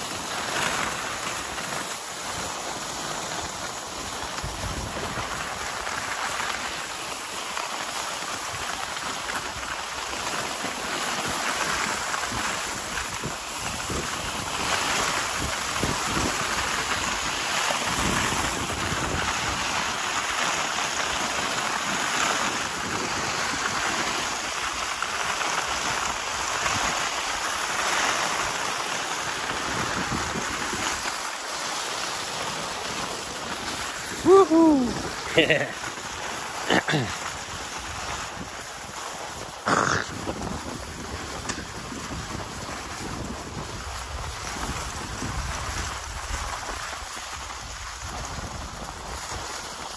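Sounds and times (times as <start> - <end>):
skis gliding on snow: 0.0 - 49.9
wind on microphone: 3.9 - 6.2, 11.8 - 20.2, 21.1 - 24.8, 29.3 - 31.2, 32.3 - 36.2, 37.2 - 49.9.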